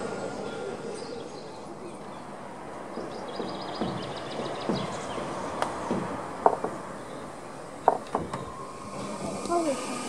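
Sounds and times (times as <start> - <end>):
steady background noise: 0.0 - 10.0
sharp knocks on metal: 3.0 - 6.9, 7.8 - 8.4.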